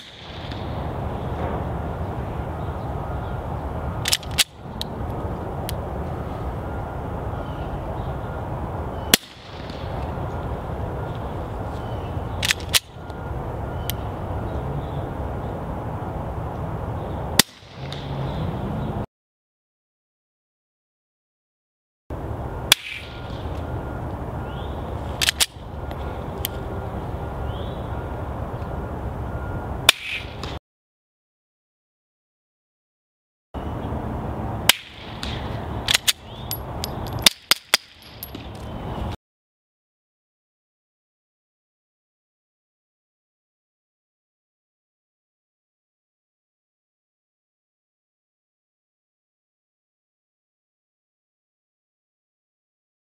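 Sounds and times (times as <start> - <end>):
steady outdoor hiss: 0.0 - 19.0, 22.1 - 30.6, 33.6 - 39.2
pistol slide clacks: 4.0 - 4.9, 12.4 - 12.9, 25.2 - 25.6, 34.7 - 38.7.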